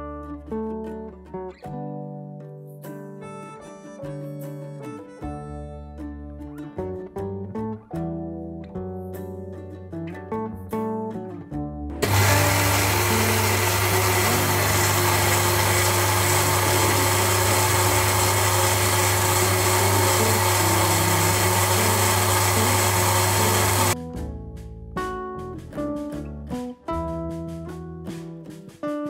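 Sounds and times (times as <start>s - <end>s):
countertop blender whirring: 12.0s - 24.0s.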